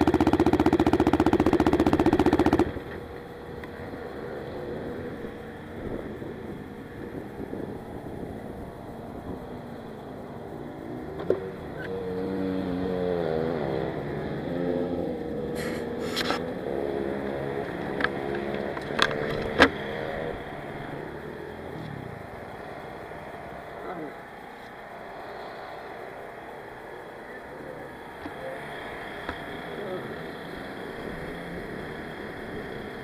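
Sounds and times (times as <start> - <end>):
engine pitch rising and falling: 0.0 - 33.0
sharp clicks and knocks: 17.6 - 19.8.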